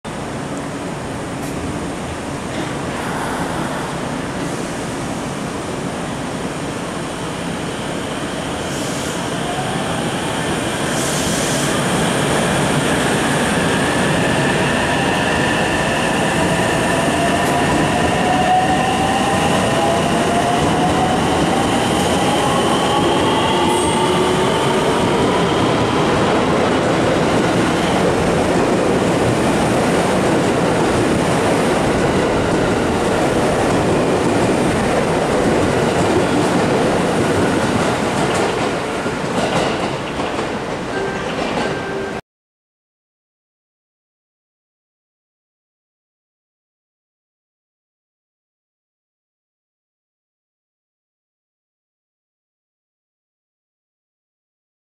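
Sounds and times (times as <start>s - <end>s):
train wheels running on rails: 15.6s - 42.1s.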